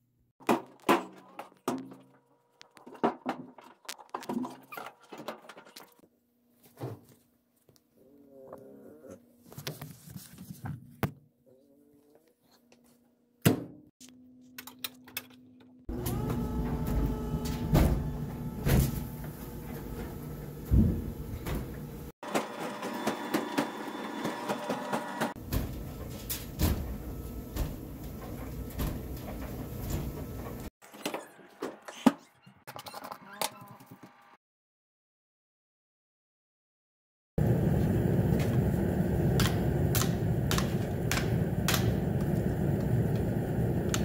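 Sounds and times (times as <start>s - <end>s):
clothes dryer motor hum: 15.9s - 30.7s, 37.4s - 44.0s.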